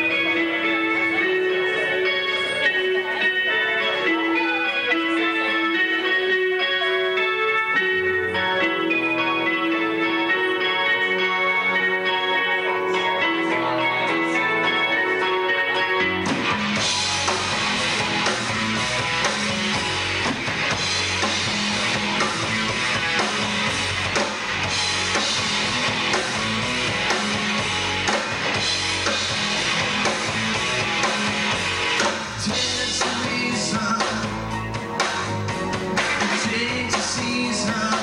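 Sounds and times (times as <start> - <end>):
bass guitar: 0.0 - 38.0
electric guitars: 0.0 - 38.0
drum kit: 15.7 - 38.0.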